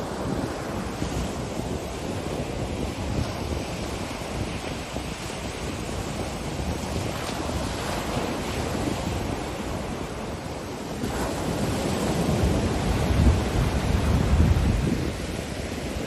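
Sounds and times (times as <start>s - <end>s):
surf breaking on beach: 0.0s - 16.0s
wind buffeting microphone: 0.0s - 16.0s.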